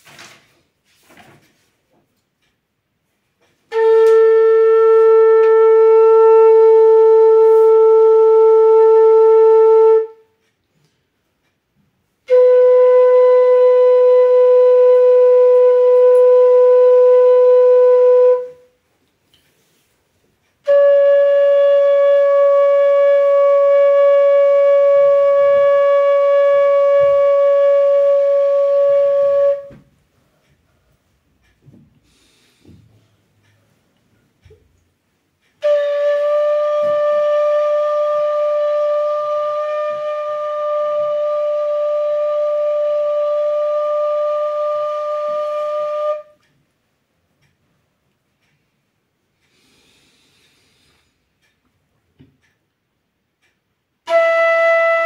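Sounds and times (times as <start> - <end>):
bamboo flute long notes: 3.5 - 10.5, 12.2 - 18.8, 20.5 - 29.9, 35.5 - 46.5, 54.0 - 55.0.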